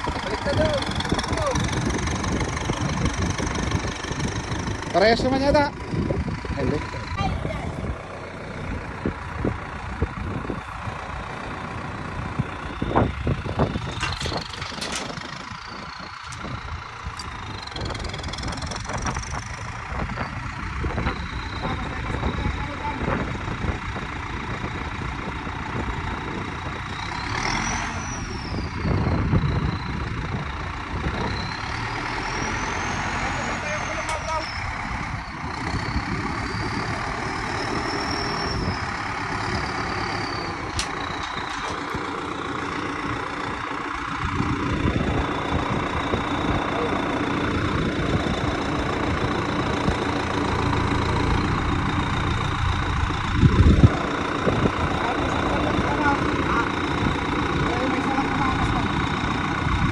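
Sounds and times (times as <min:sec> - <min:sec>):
low rumble: 0:00.0 - 0:27.0, 0:34.5 - 0:59.9
high engine whine: 0:00.0 - 0:59.9
tractor engine running: 0:00.0 - 0:59.9.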